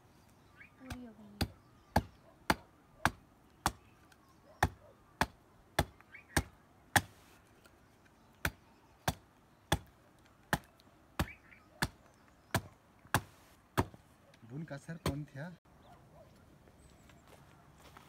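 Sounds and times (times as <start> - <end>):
hatchet chopping wood: 0.9 - 3.9, 4.6 - 7.2, 8.4 - 14.0.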